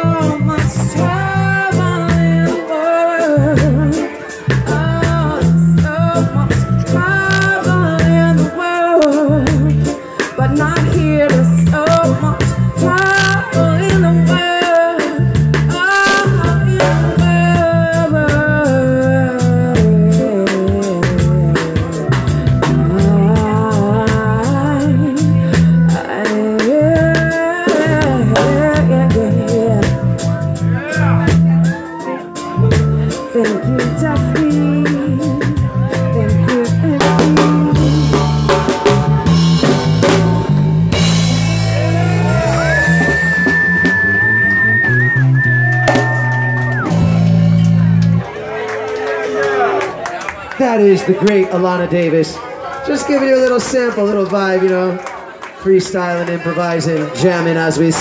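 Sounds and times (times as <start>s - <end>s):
woman singing: 0.0s - 30.4s, 31.7s - 39.4s
drum kit: 0.0s - 48.3s
electric bass: 0.0s - 48.4s.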